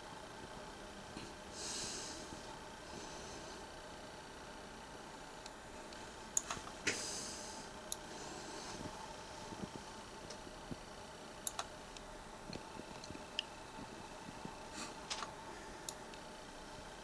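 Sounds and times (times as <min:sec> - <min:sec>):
low room hum: 0:00.0 - 0:17.0
small clicks and ticks: 0:11.4 - 0:16.3.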